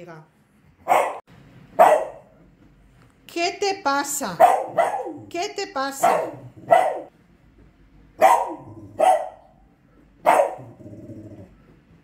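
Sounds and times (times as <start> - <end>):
small dog barking: 0.8 - 1.2, 1.8 - 2.3, 4.4 - 5.3, 6.0 - 7.1, 8.2 - 9.6, 10.2 - 10.8.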